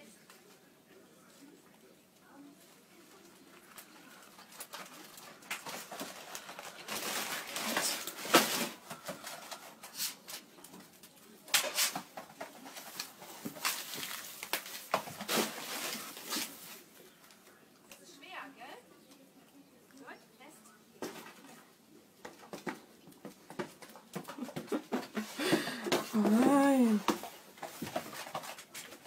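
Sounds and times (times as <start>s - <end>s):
bags rustling and crinkling: 3.8s - 10.6s, 12.6s - 16.9s.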